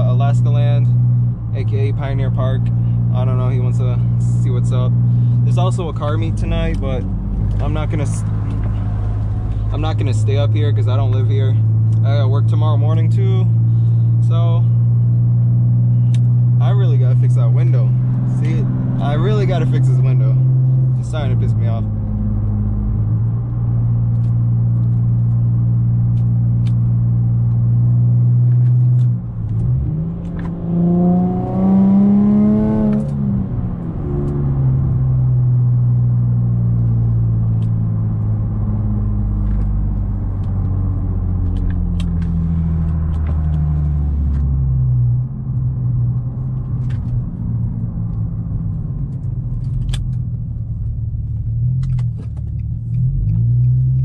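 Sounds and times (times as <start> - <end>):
car engine droning in cabin: 0.0 - 54.0.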